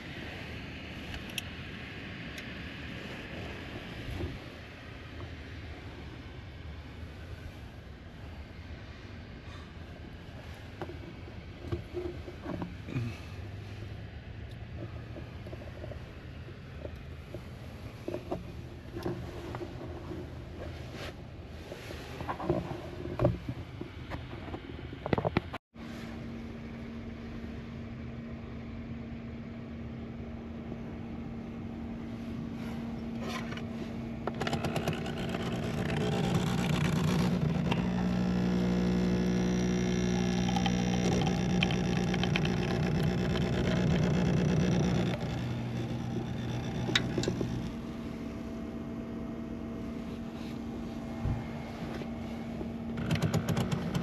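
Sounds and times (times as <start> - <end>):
coffee maker electric hum: 25.8 - 54.0.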